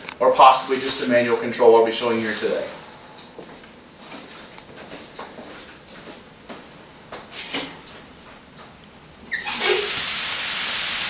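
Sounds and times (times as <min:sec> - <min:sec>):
footsteps: 0:00.4 - 0:08.8
fogging nozzles hissing: 0:09.4 - 0:11.0.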